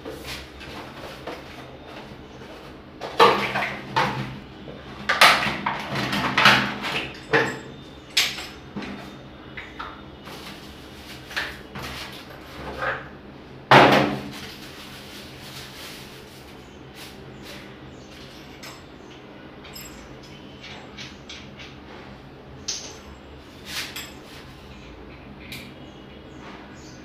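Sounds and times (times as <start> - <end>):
cardboard and plastic rustling: 10.2 - 12.8, 14.0 - 18.5.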